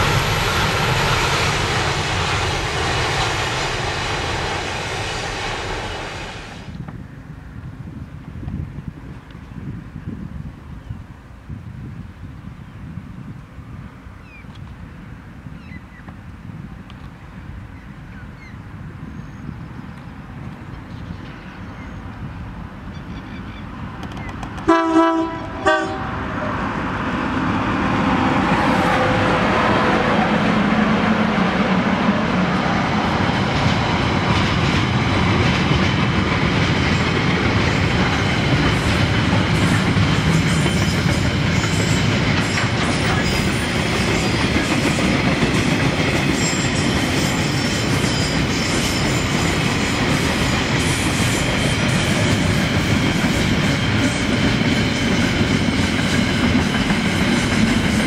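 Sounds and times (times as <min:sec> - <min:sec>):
train rumble and wheel clatter: 0:00.0 - 0:58.0
train horn blasts: 0:24.6 - 0:26.7.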